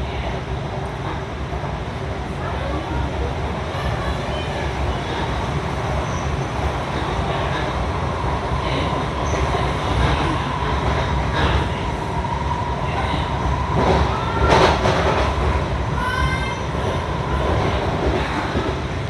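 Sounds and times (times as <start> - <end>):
train clatter: 3.7 - 11.9, 13.0 - 19.0.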